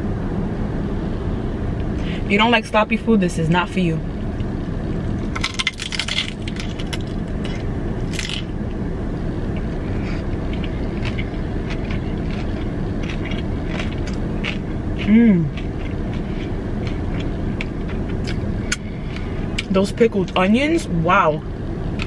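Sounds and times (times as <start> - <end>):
crunching bites: 5.1 - 8.6, 9.6 - 19.7
chewing with small crackles: 9.5 - 19.7.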